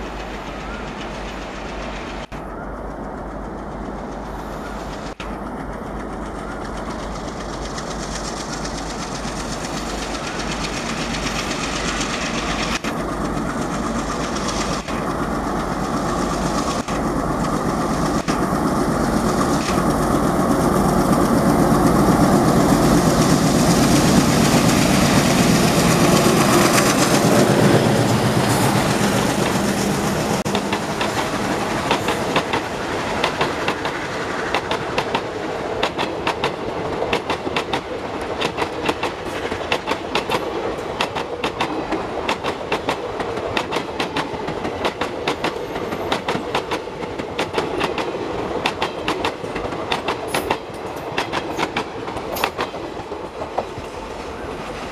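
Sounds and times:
diesel locomotive engine: 0.0s - 54.9s
train wheels clacking on rails: 0.0s - 54.9s.

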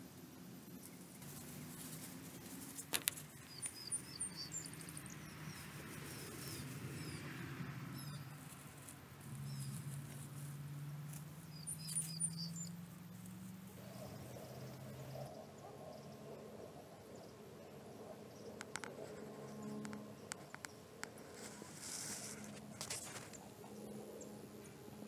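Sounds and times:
partridges chirping: 0.8s - 8.6s, 9.3s - 10.2s, 11.1s - 13.0s.

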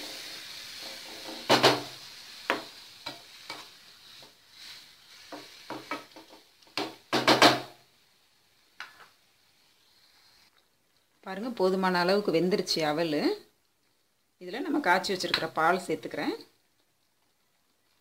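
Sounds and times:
wooden spatula scraping a frying pan: 0.0s - 7.7s
faint sizzle: 0.0s - 18.0s.

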